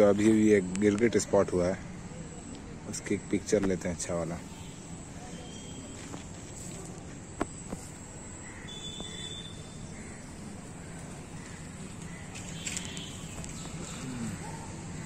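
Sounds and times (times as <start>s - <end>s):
faint bird calls: 8.3s - 15.0s.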